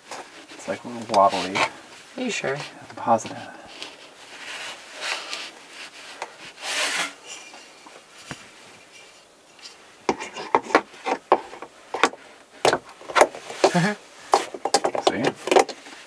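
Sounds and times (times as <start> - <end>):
wood scraping against wood: 0.0 - 16.0
sharp wooden knocks and clicks: 10.1 - 16.0.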